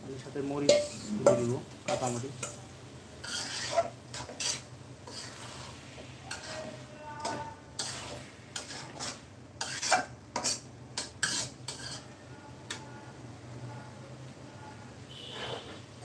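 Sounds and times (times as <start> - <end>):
faint sizzle of frying: 0.0 - 16.0
metal spatula scraping a wok: 0.5 - 2.6, 3.2 - 12.8, 15.1 - 16.0.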